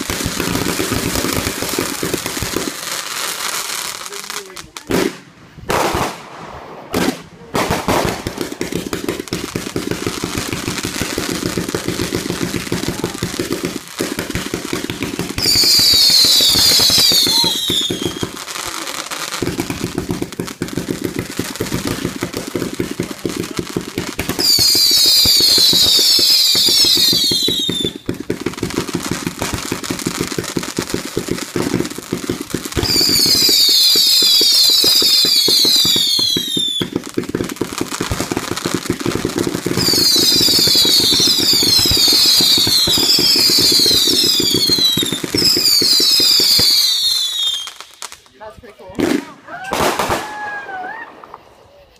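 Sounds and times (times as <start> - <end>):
screaming firework whistles: 15.4 - 18.4, 24.4 - 28.0, 32.8 - 37.0, 39.8 - 47.9, 49.5 - 51.8.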